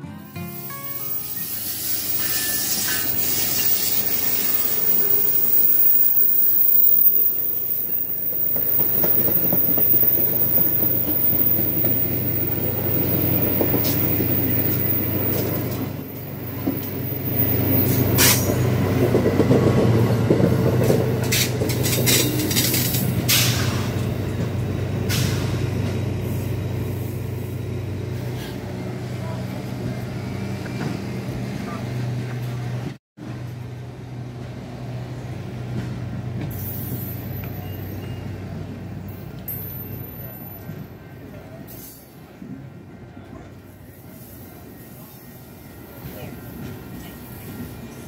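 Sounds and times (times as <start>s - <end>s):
train coaches rumbling past: 0.2s - 48.0s
locomotive engine drone: 0.3s - 41.4s
wheels clicking over rail joints: 6.2s - 25.2s.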